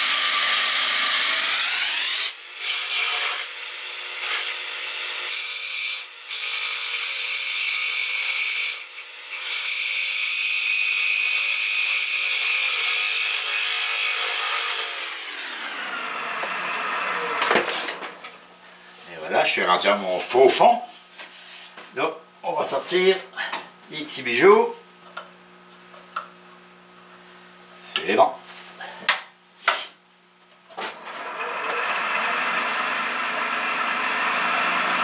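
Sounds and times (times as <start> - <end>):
gouge scraping spinning wood: 0.0 - 3.4
lathe hum: 0.0 - 6.4, 14.6 - 17.5, 31.0 - 35.0.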